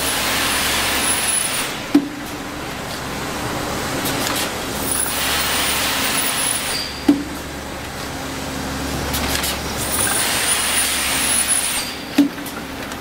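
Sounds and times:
machine low hum: 0:01.7 - 0:06.2.

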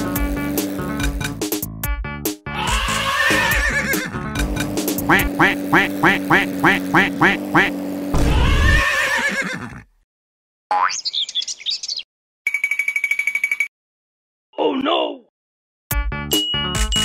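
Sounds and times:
cartoon crash: 0:08.1 - 0:08.9
falling squeaky chirps: 0:10.9 - 0:12.0.

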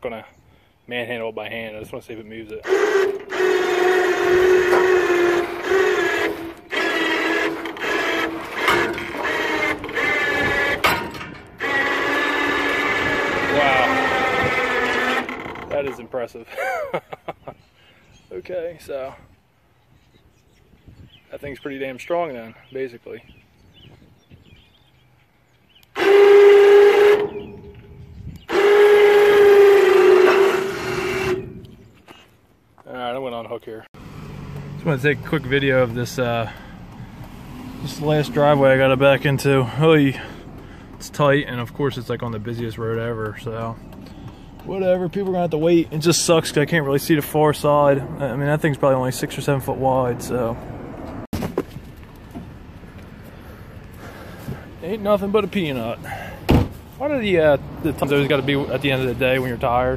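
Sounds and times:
electric winch motor whining: 0:02.6 - 0:16.1, 0:25.9 - 0:31.9.

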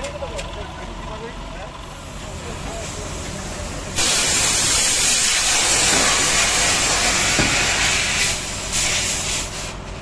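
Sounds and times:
compressed air hissing: 0:02.2 - 0:09.9.

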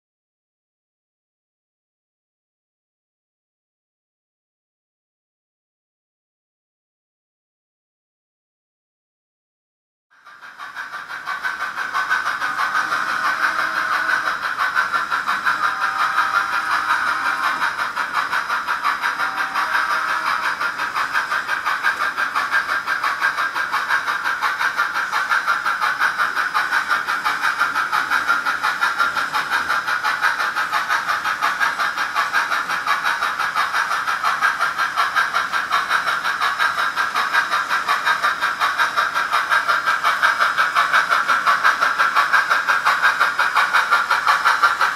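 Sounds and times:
model steam locomotive chuffing: 0:10.1 - 0:44.9.

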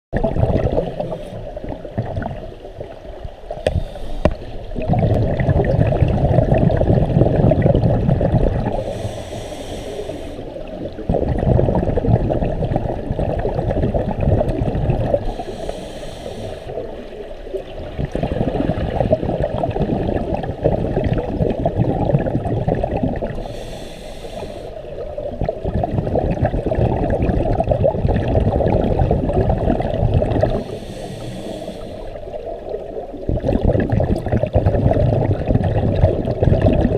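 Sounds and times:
underwater bubbling exhalation: 0:00.2 - 0:36.9
regulator hissing inhalation: 0:03.6 - 0:04.5, 0:08.8 - 0:10.6, 0:15.2 - 0:16.8, 0:23.4 - 0:24.9, 0:30.6 - 0:32.2.

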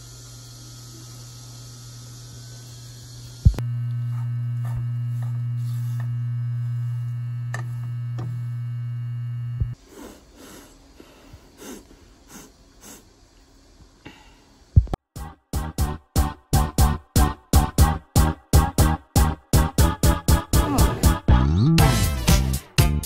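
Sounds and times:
low electrical hum: 0:00.0 - 0:15.0.

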